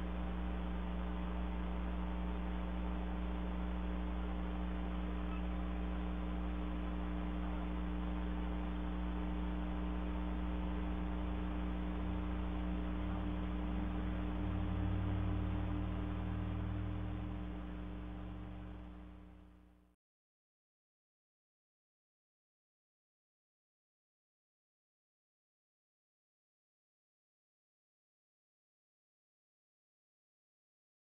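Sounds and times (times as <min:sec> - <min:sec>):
electrical mains hum: 0:00.0 - 0:19.8.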